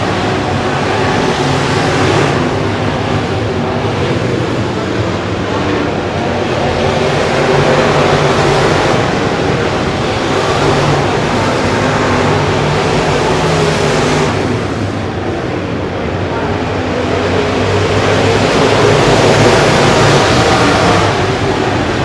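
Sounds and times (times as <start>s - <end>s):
race car engines roaring: 0.0s - 22.0s.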